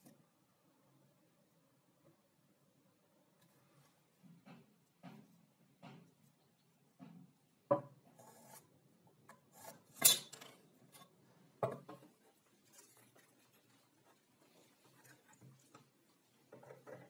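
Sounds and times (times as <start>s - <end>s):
soft rubbing and small taps: 11.6s - 17.0s.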